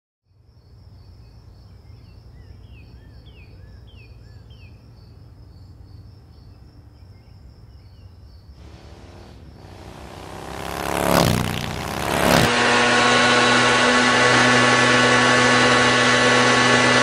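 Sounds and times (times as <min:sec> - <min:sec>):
insects trilling: 0:05.0 - 0:12.5.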